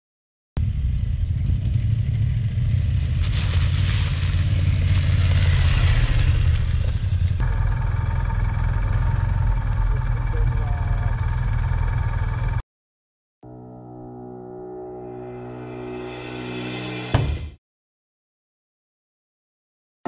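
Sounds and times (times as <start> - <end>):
engine drone with humming tone: 0.6 - 12.6
motorcycle engine rumble: 0.6 - 12.6.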